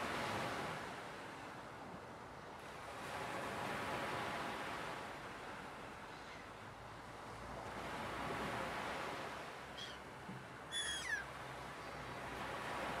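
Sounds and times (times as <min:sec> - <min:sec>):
ocean surf: 0:00.0 - 0:13.0
faint bird chirp: 0:09.8 - 0:10.0, 0:10.7 - 0:12.0
high bird call: 0:09.8 - 0:10.0, 0:10.7 - 0:11.3.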